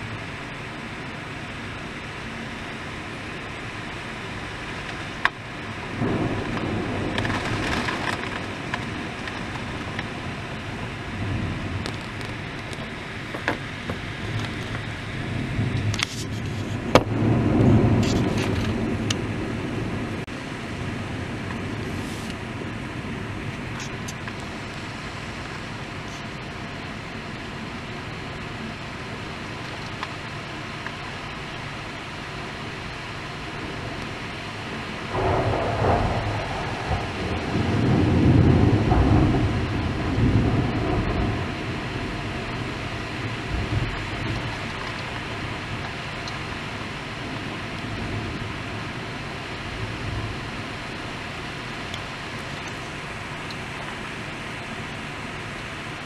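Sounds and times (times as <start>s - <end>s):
low thunder rumble: 0.0s - 31.0s, 32.9s - 55.2s
rain and wind hiss: 0.0s - 56.0s
thunder crack: 5.9s - 13.0s, 14.2s - 24.5s, 35.0s - 45.8s.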